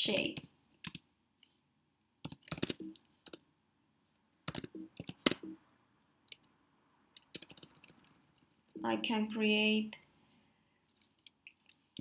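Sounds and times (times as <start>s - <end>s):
computer keyboard typing: 0.1s - 1.0s, 2.2s - 3.4s, 4.4s - 5.6s, 7.2s - 8.8s.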